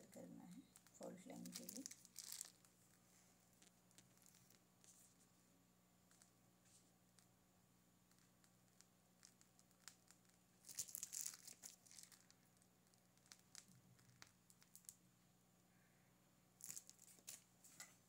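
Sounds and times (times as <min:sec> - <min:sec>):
plastic piping bag crinkling: 0:00.0 - 0:05.1, 0:08.1 - 0:15.0, 0:16.6 - 0:17.5
faint low hum: 0:00.0 - 0:18.0.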